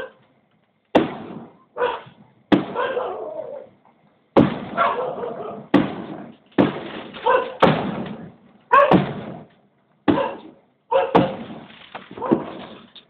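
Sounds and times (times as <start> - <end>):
firework shells exploding: 1.0 - 1.6, 4.4 - 5.0, 5.7 - 9.5, 11.2 - 12.6.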